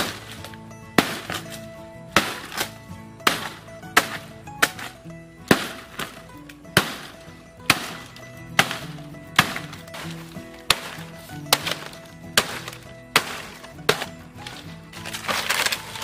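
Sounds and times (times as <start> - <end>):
background music: 0.0 - 16.0
blade chopping dry palm fronds: 0.0 - 16.0.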